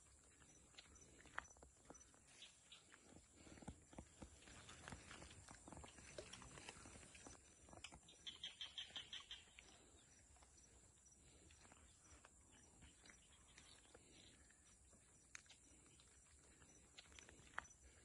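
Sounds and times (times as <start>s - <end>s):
small animal chirping: 7.8s - 9.8s
soft ticks and clicks: 14.6s - 17.9s.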